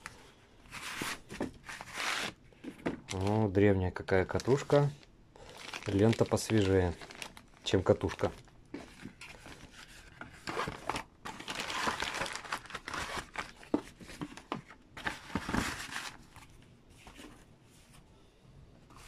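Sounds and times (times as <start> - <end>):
plastic bag crinkling: 4.2 - 8.5, 10.7 - 13.6.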